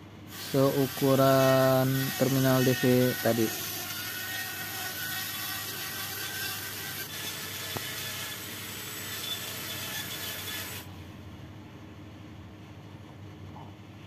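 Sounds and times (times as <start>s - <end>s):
rotary tool grinding plastic: 0.3s - 10.9s.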